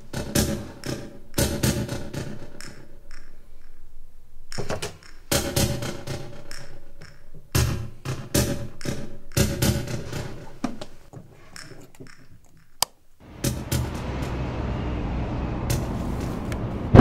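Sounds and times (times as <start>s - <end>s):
tense film score music: 13.2s - 17.0s.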